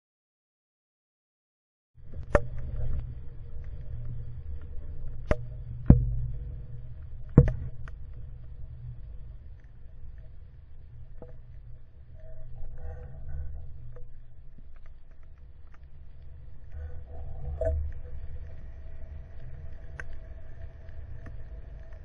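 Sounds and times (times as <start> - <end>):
faint hum: 2.0 - 22.0
underwater low rumble: 2.0 - 22.0
sharp underwater clicks: 2.1 - 10.3.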